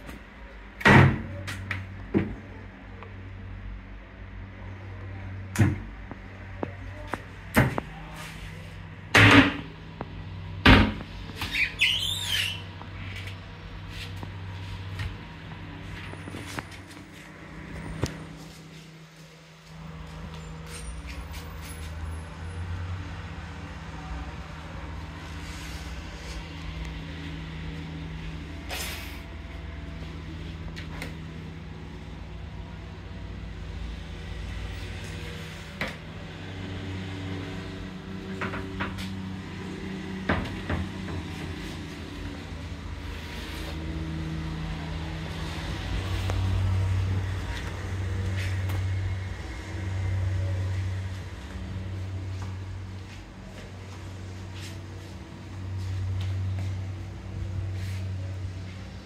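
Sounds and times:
low rumble of road traffic: 0:00.0 - 0:59.0
brief high squeak: 0:11.4 - 0:12.6.

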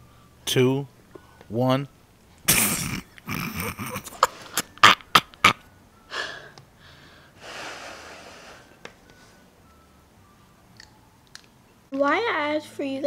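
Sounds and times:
mouth smacks: 0:02.4 - 0:05.6.

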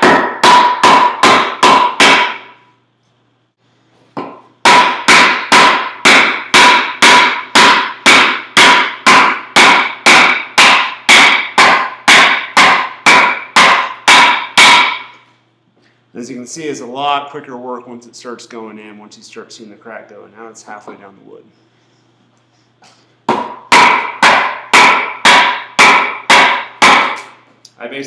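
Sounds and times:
wooden club knocking wedges: 0:00.0 - 0:02.5, 0:04.2 - 0:15.1.

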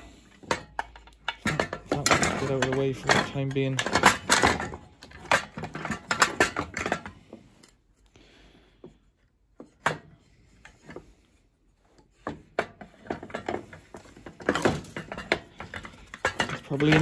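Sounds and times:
clicks and knocks of metal parts: 0:00.0 - 0:08.1, 0:08.9 - 0:11.3, 0:11.9 - 0:17.0.

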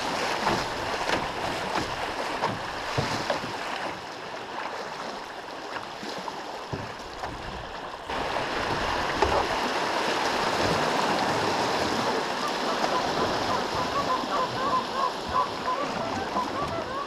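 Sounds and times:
river water rushing and splashing: 0:00.0 - 0:17.0.

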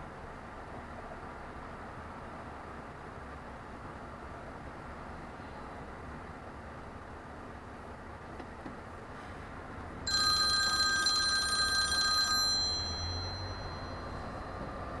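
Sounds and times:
car and road rumble: 0:00.0 - 0:15.0
electronic ringing tone: 0:10.1 - 0:14.6.

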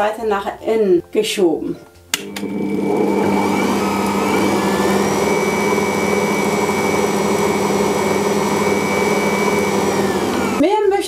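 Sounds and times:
stand mixer motor humming: 0:02.2 - 0:10.6.

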